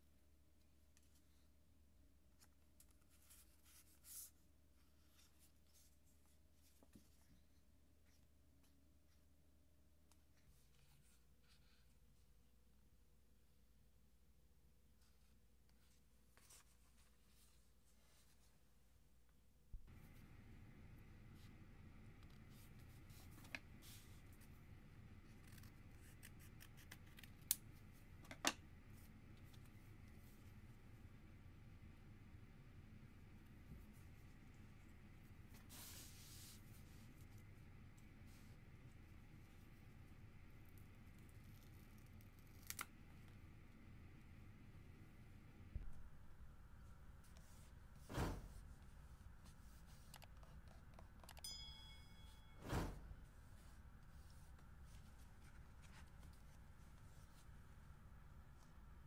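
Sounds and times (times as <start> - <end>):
scissors snipping paper: 41.1 - 43.0.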